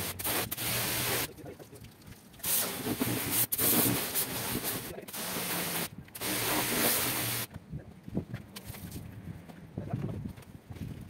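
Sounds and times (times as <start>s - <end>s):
pressure washer spraying: 0.0s - 1.3s, 2.4s - 7.5s.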